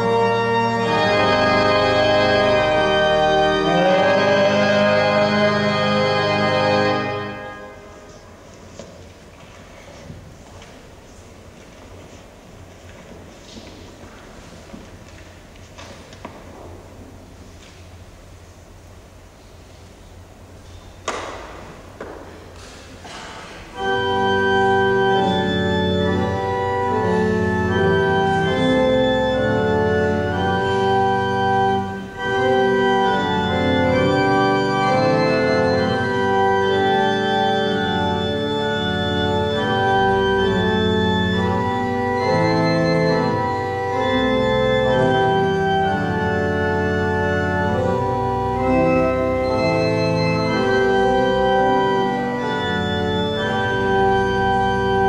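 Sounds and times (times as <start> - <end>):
church organ chords: 0.0 - 8.4, 21.0 - 55.0.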